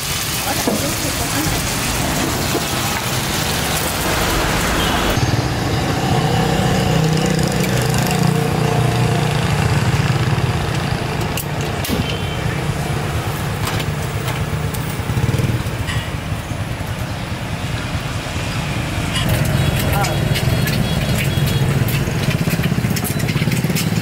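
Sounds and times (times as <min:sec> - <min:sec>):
loud low engine hum: 0:01.0 - 0:24.0.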